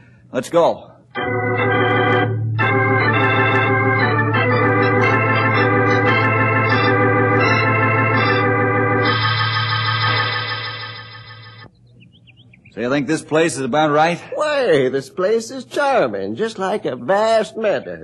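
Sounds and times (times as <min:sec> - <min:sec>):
organ music: 0:01.1 - 0:11.8.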